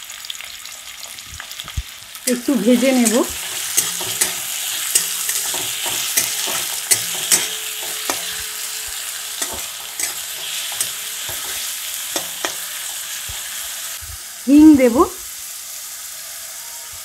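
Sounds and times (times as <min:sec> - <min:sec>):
onions sizzling in oil: 0:00.0 - 0:17.0
metal spatula scraping pan: 0:02.3 - 0:13.8.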